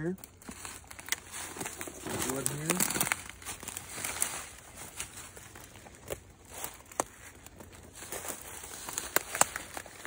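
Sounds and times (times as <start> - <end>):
footsteps crunching dry leaves: 0.2 - 10.0.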